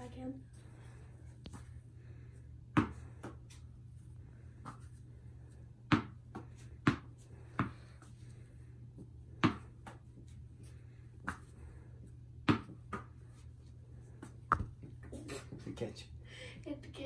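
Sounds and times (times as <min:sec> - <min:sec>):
low steady hum: 0:00.0 - 0:17.0
tennis ball bouncing: 0:05.9 - 0:07.8, 0:09.4 - 0:10.0, 0:12.4 - 0:13.1.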